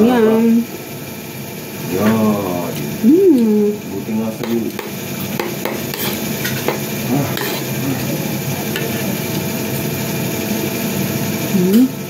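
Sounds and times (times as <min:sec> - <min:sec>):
steady hum and hiss: 0:00.0 - 0:12.0
cutlery scraping ceramic plate: 0:04.5 - 0:07.7.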